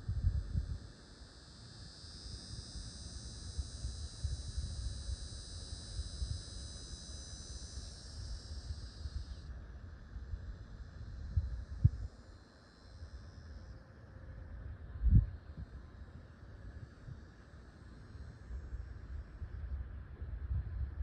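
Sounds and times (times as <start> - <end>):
wind rumble on microphone: 0.0 - 1.1, 2.4 - 6.8, 7.5 - 12.2, 14.4 - 17.4, 18.2 - 21.0
insects buzzing: 0.1 - 19.8.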